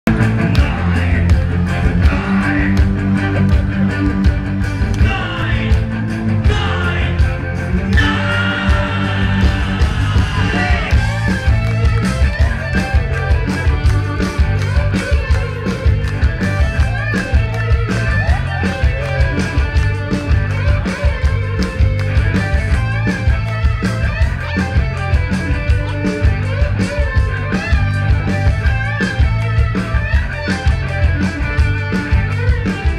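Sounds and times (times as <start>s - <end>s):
live rock band playing: 0.1s - 32.9s.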